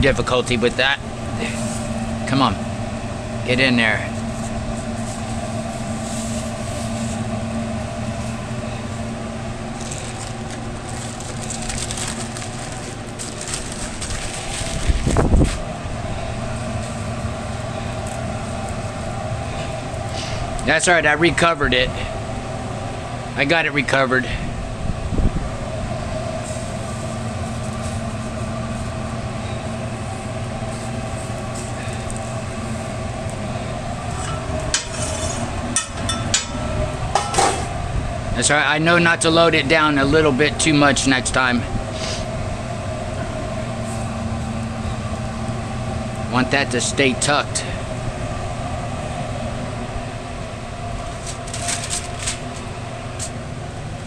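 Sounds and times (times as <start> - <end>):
kitchen machinery humming: 0.0 - 54.0
aluminium foil crinkling and tearing: 9.7 - 15.2, 51.1 - 52.7.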